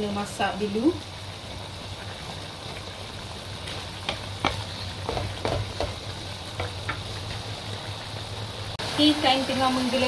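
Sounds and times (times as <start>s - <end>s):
sauce bubbling and sizzling: 0.0s - 10.0s.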